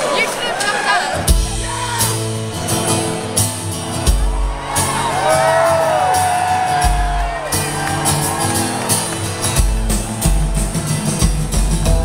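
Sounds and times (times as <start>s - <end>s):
rock band playing: 1.1s - 12.0s
audience whooping: 4.1s - 10.9s.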